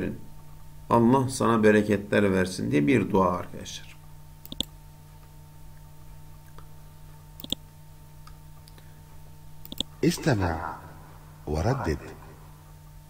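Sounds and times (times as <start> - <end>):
steady low hum: 0.0 - 13.0
computer mouse click: 4.4 - 4.8, 7.4 - 7.6, 9.6 - 9.9.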